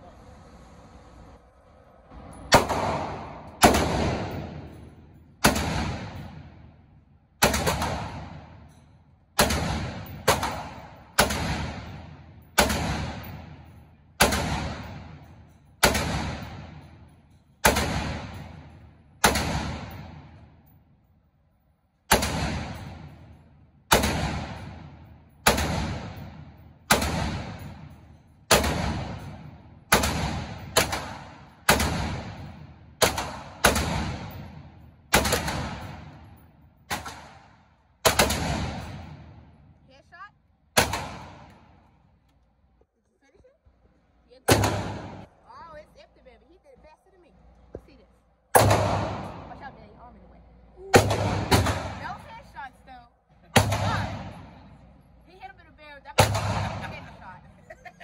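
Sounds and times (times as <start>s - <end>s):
rifle shots echoing indoors: 2.4s - 21.2s, 22.0s - 39.8s, 40.7s - 42.4s, 44.5s - 45.4s, 48.5s - 49.8s, 50.9s - 52.4s, 53.5s - 55.1s, 56.2s - 57.5s.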